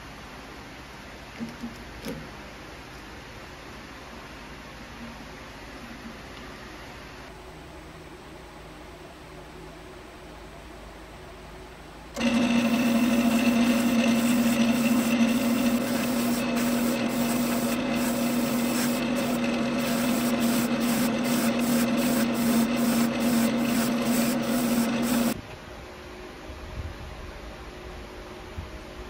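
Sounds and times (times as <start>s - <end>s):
lathe humming: 12.2s - 25.4s
wire brush scratching metal: 12.2s - 25.4s.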